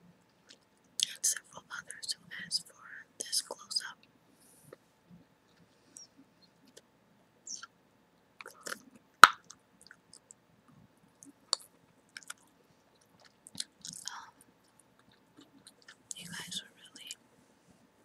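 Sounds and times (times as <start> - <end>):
gum chewing clicks and smacks: 8.4 - 10.4, 11.2 - 16.2.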